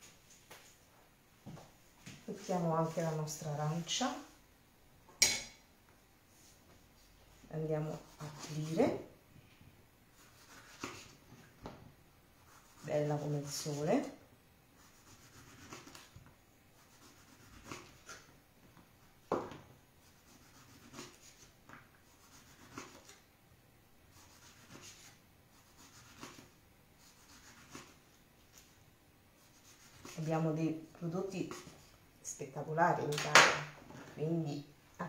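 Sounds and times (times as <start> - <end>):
knife scraping orange peel: 10.2 - 11.2, 14.8 - 16.1, 16.8 - 18.3, 20.1 - 21.5, 22.1 - 23.2, 24.1 - 28.6, 29.4 - 30.4.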